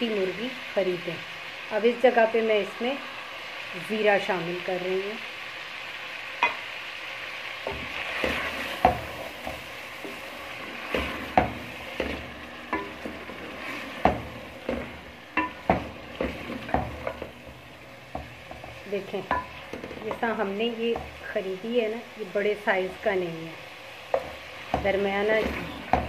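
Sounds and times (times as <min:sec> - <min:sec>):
chicken sizzling in a pot: 0:00.0 - 0:26.0
spoon knocking against pot: 0:19.3 - 0:20.2.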